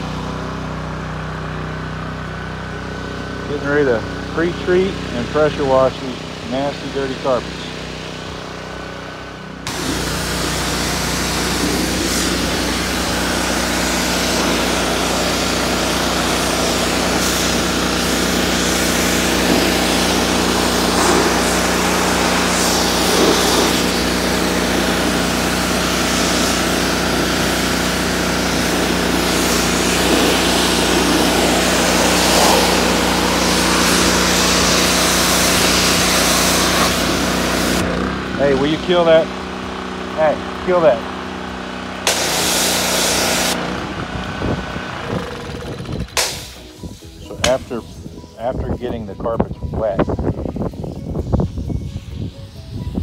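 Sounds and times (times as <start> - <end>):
pressure washer engine humming: 0.0 - 53.0
water spray hissing on carpet: 9.7 - 37.8, 42.0 - 43.6.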